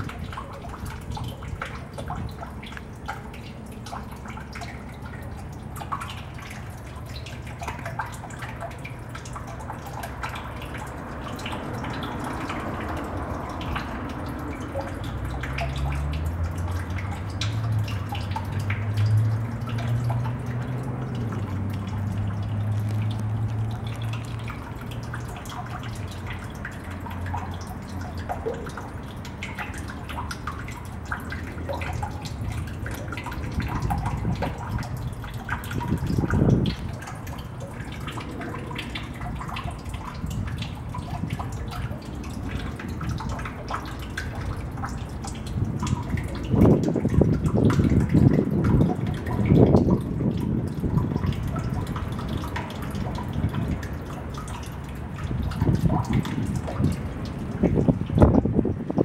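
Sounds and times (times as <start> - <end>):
water dripping in drain: 0.0 - 59.0.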